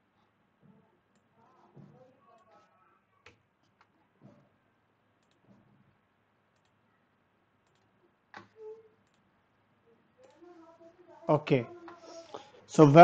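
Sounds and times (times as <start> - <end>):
computer mouse clicks: 5.2 - 5.4, 6.5 - 6.8, 7.6 - 9.2.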